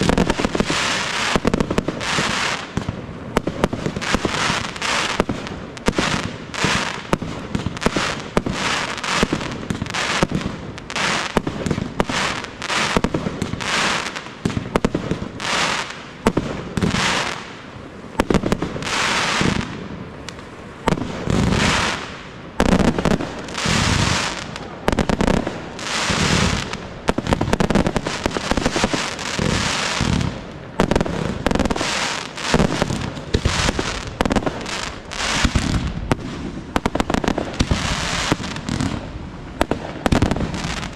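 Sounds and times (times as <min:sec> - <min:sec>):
fireworks bursting with bangs: 0:00.0 - 0:40.9
glittering firework crackle: 0:00.0 - 0:40.9.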